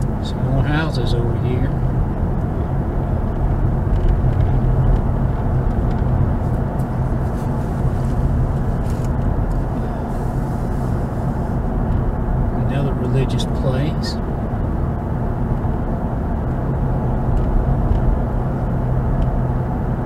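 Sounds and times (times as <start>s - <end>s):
car interior road rumble: 0.0s - 20.0s.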